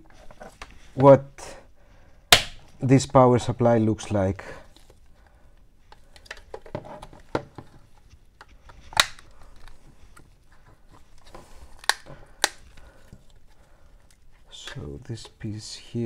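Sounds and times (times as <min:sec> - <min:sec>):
sharp plastic cracks: 0:02.3 - 0:02.7, 0:08.8 - 0:09.8, 0:11.8 - 0:12.9
plastic case scraping and creaking: 0:06.2 - 0:08.1.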